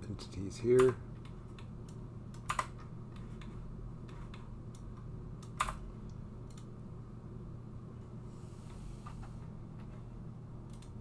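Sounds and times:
low electrical hum: 0:00.0 - 0:11.0
keyboard and mouse clicks: 0:00.8 - 0:06.7, 0:10.6 - 0:11.0.

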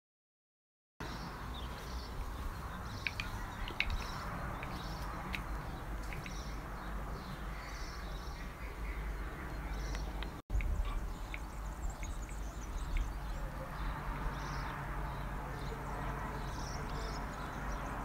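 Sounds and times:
small clicks: 0:03.0 - 0:06.5.

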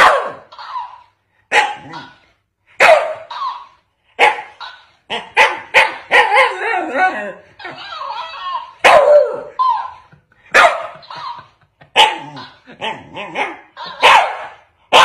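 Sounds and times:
dog barking: 0:00.0 - 0:02.1, 0:02.8 - 0:06.6, 0:08.8 - 0:09.9, 0:10.5 - 0:11.4, 0:13.3 - 0:15.0.

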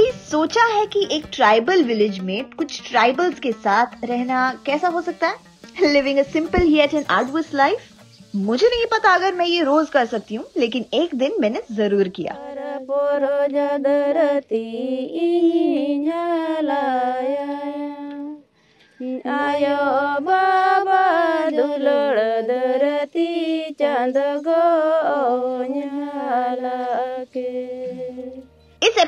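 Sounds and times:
woman singing slow melody: 0:12.1 - 0:28.5.

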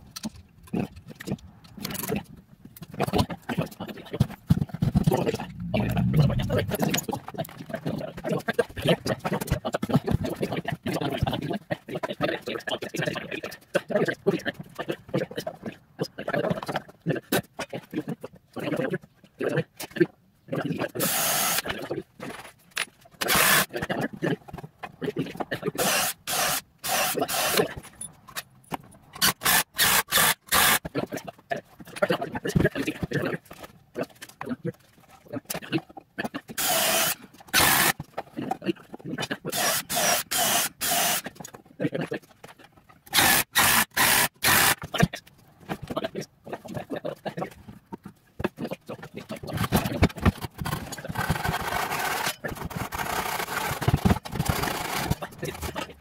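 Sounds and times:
pull saw rasping through wood: 0:23.2 - 0:23.7, 0:25.8 - 0:27.7, 0:29.2 - 0:30.9, 0:36.6 - 0:37.9, 0:39.5 - 0:41.3, 0:43.1 - 0:44.9, 0:50.6 - 0:55.8
ratchet wrench clicking: 0:29.2 - 0:30.8, 0:36.6 - 0:38.0, 0:39.5 - 0:41.3, 0:43.1 - 0:44.8.

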